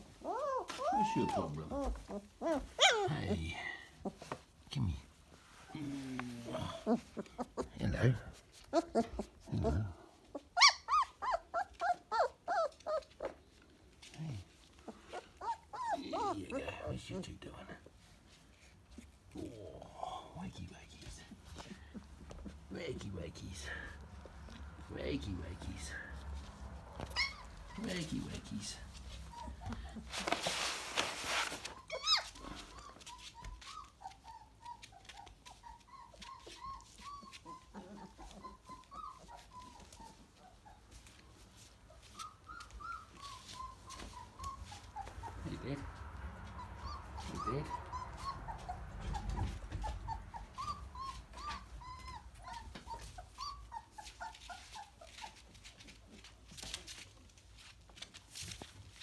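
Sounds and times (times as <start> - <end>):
puppies whimpering: 0.0 - 4.3, 5.7 - 13.4, 14.7 - 17.2, 18.5 - 58.6
rustling: 0.0 - 59.0
puppy yelp: 0.1 - 3.4, 8.6 - 13.4, 14.9 - 17.0, 25.8 - 27.9, 29.0 - 30.6, 31.4 - 58.7.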